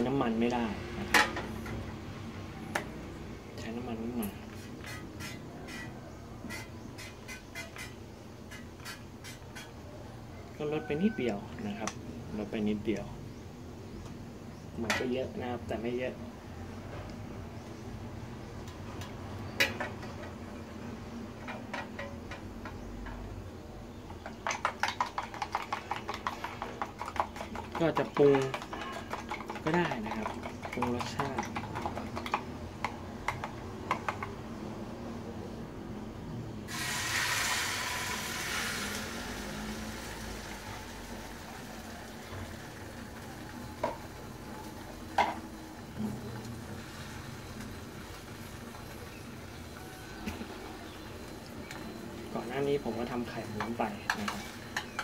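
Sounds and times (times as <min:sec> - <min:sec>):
metal mess tin clicking and knocking: 0:24.2 - 0:34.4
egg sizzling in hot oil: 0:36.7 - 0:55.0.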